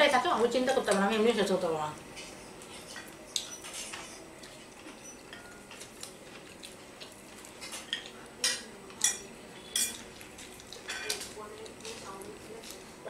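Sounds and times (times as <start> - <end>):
cutlery clinking on plates: 5.2 - 5.9, 7.6 - 11.3.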